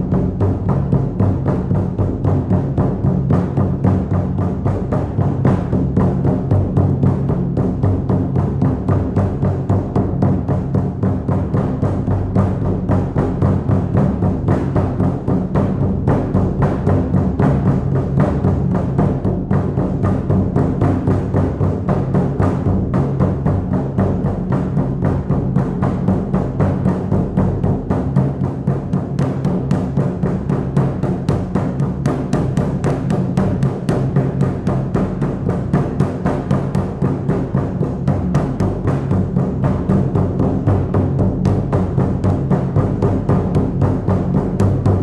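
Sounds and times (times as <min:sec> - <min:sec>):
frame drum beating: 0:00.0 - 0:45.0.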